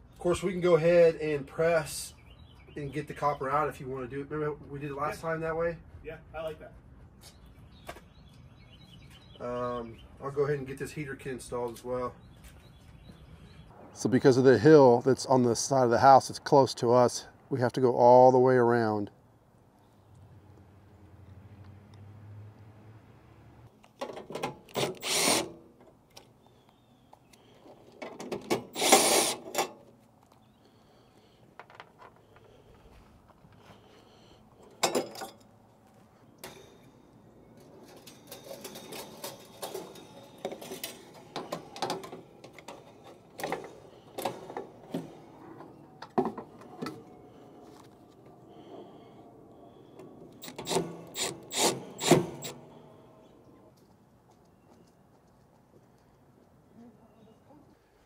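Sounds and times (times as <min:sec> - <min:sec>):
clicks and scraping of metal parts: 0:27.1 - 0:30.4, 0:34.6 - 0:35.6, 0:36.4 - 0:48.8, 0:49.8 - 0:53.9
metal rattling clatters: 0:37.6 - 0:45.2.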